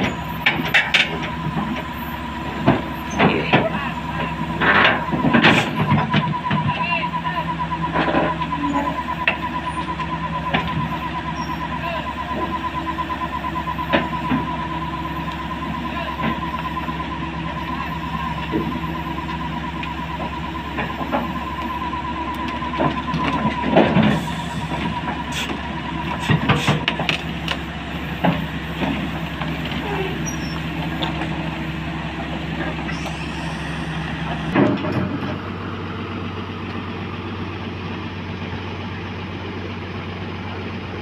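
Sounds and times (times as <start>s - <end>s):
steel tracks clanking: 0.0s - 37.7s
excavator diesel engine running: 0.0s - 41.0s
rapid high-pitched beeping alarm: 3.1s - 32.2s.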